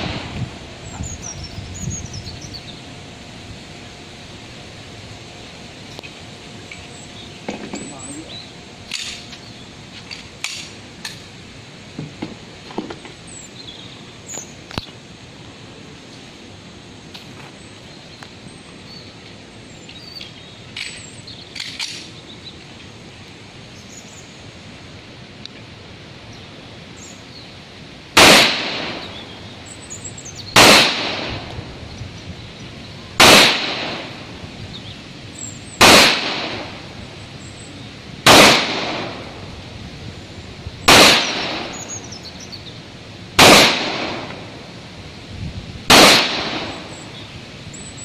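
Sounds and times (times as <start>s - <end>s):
faint sharp cracks and clicks: 10.0s - 11.3s, 20.2s - 22.7s
pistol shots with echo: 28.2s - 29.2s, 30.6s - 31.5s, 33.2s - 34.2s, 35.8s - 36.8s, 38.2s - 39.3s, 40.9s - 41.9s, 43.4s - 44.4s, 45.9s - 46.9s.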